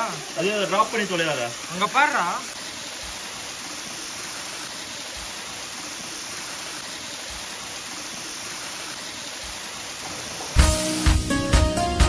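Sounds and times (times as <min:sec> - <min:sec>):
waterfall pouring into a pool: 0:00.0 - 0:11.3.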